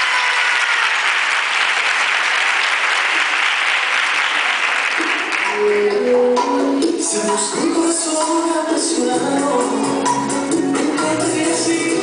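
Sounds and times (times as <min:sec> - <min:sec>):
audience applauding: 0:00.0 - 0:06.0
latin beat music: 0:04.6 - 0:12.0.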